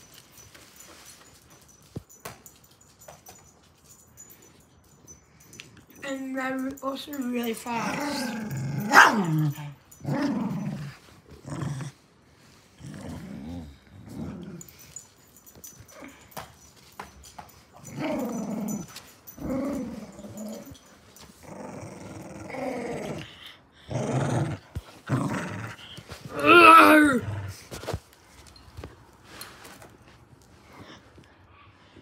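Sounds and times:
dog growling in play: 0:07.7 - 0:14.8, 0:17.8 - 0:20.8, 0:21.4 - 0:27.8.

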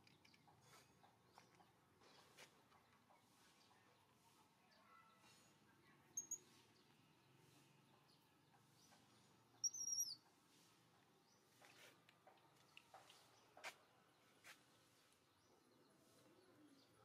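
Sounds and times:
small bird chirping: 0:00.0 - 0:13.6.

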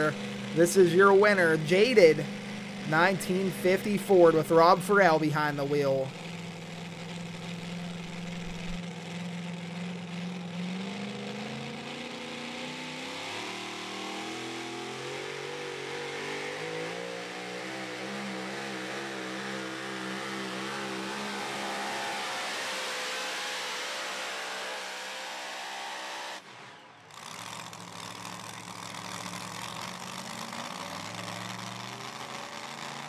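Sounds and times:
truck engine at full throttle: 0:00.0 - 0:33.0.

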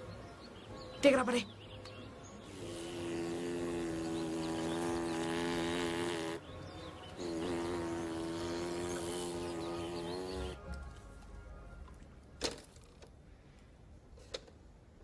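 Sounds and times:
boy buzzing with lips: 0:02.4 - 0:10.6.

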